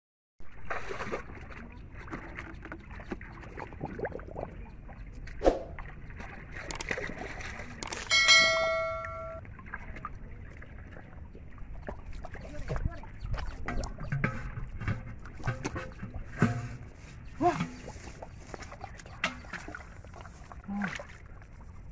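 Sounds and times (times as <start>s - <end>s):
fish splashing in shallow water: 0.5s - 8.8s, 9.4s - 21.9s
bell-like chime: 7.9s - 9.4s.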